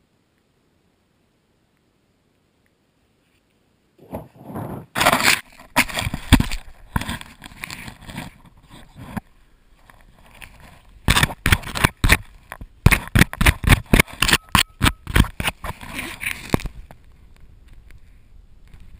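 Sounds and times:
camera handling scrapes and knocks: 4.1 - 17.0.

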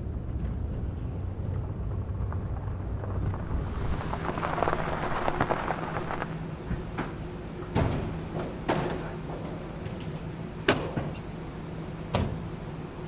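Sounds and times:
low hum: 0.0 - 8.6.

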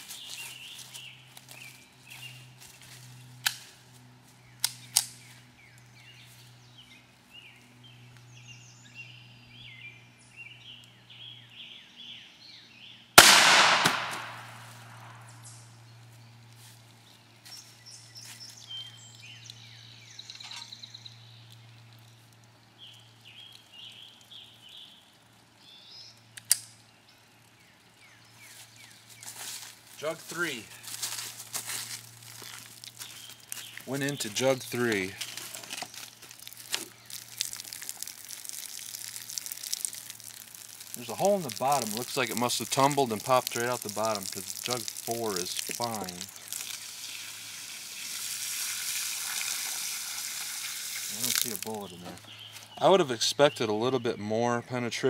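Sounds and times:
birds chirping: 0.0 - 48.5, 50.5 - 55.0
pistol shot echoing: 13.2 - 15.2.

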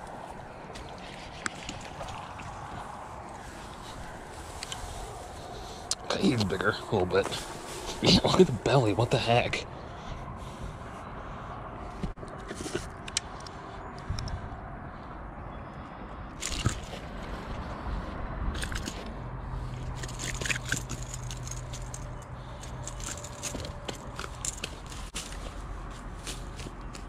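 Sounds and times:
dry grass rustling: 0.0 - 9.0, 16.4 - 27.0
clicks and scrapes: 19.8 - 25.4.

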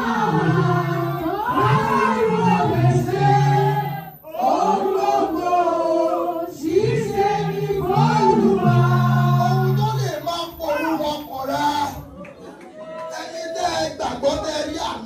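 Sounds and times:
man chanting into a microphone: 6.7 - 12.1.

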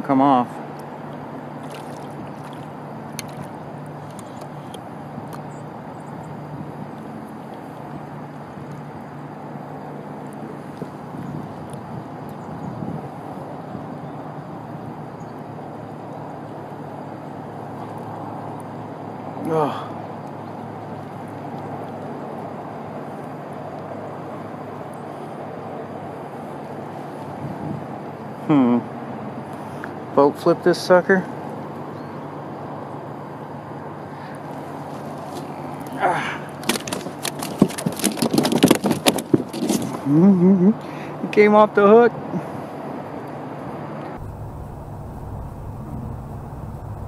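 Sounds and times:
fish splashing at water surface: 1.1 - 4.3
steady rumbling background noise: 43.5 - 47.0
low hum: 44.1 - 47.0
steady rushing background: 44.2 - 47.0.

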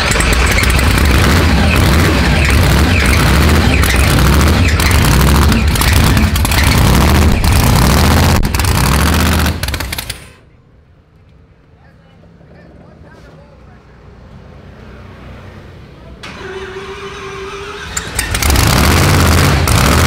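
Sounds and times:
rough engine rumble with pops: 0.0 - 10.4, 18.0 - 20.0.

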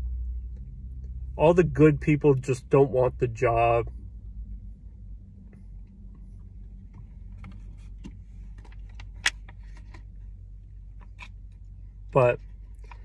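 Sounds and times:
low hum inside car: 0.0 - 13.0.

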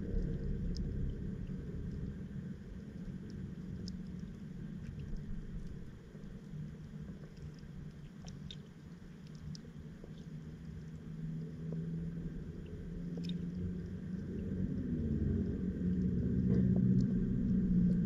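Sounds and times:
muffled underwater rumble: 0.0 - 18.0
steady underwater hum: 0.0 - 18.0
faint clicks: 0.2 - 11.9, 12.6 - 14.6.

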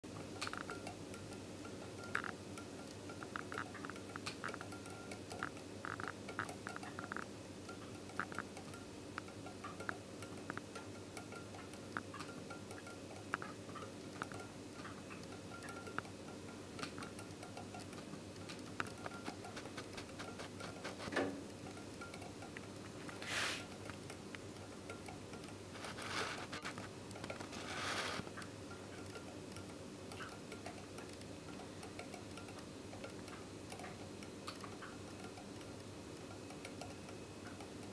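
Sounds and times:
wire clicking and scraping on magnets: 0.1 - 37.9
short hissing noises: 23.1 - 23.8, 27.5 - 28.3.

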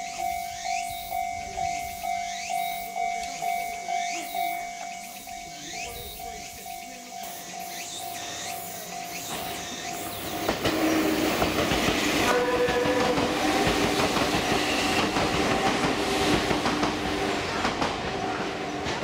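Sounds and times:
level crossing warning bell: 0.0 - 16.4
train wheels clattering on rails: 8.7 - 19.0.

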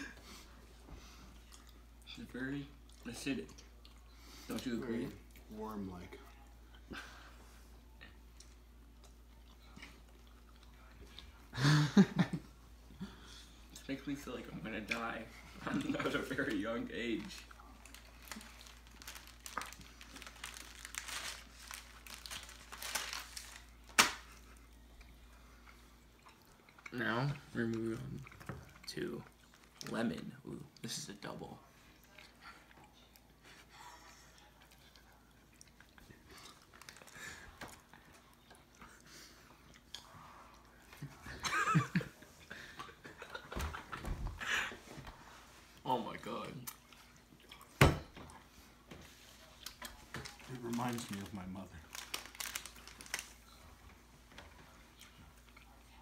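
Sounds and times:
plastic bag crinkling: 16.5 - 24.4, 36.6 - 37.5, 49.8 - 53.6.

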